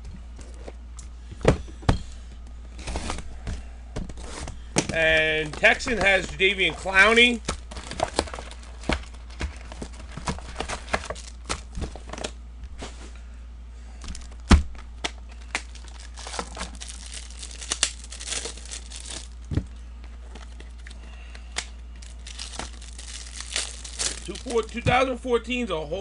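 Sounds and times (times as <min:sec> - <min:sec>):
cards being handled: 0:04.0 - 0:12.4, 0:15.0 - 0:19.4, 0:20.1 - 0:25.0
card wrappers crinkling and tearing: 0:04.2 - 0:12.4, 0:14.1 - 0:19.6, 0:20.2 - 0:25.1.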